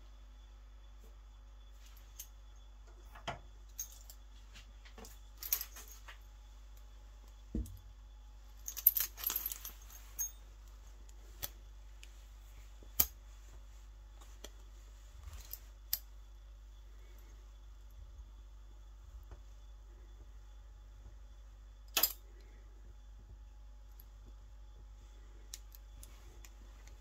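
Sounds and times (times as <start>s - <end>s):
handcuffs and chain jingling: 8.6s - 10.5s.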